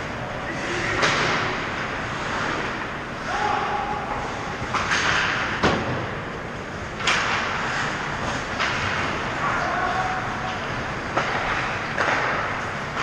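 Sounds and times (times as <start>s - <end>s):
stick or puck crack: 7.0s - 7.6s, 11.1s - 13.0s
skates scraping on ice: 7.0s - 10.0s.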